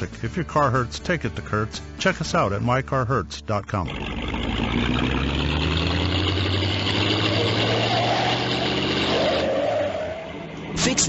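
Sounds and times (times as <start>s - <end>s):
vehicle engine running steadily: 3.5s - 7.7s.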